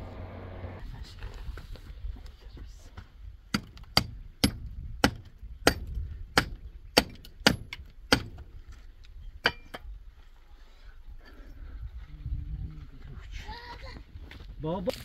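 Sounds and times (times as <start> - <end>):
hammer striking masonry: 3.5 - 8.4, 9.4 - 9.9.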